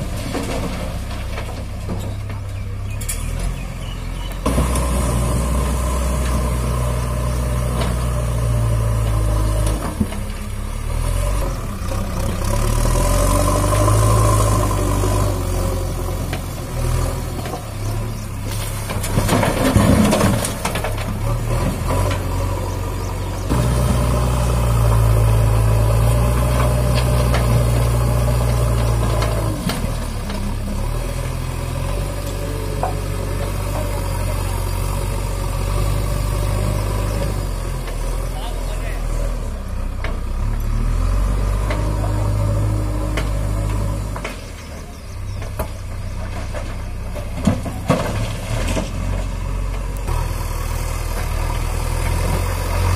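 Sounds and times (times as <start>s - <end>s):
bucket load rattling into truck: 0.0s - 3.3s, 18.6s - 22.3s, 45.8s - 49.4s
diesel engine revving: 0.0s - 52.9s.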